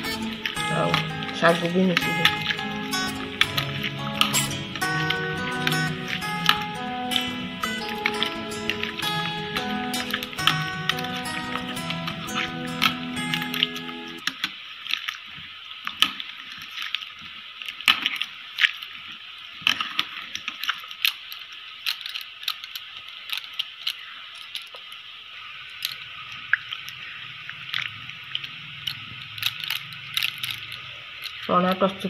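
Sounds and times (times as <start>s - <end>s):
bangles clinking: 0.0s - 14.2s, 28.4s - 31.5s
liquid squishing: 0.0s - 32.0s.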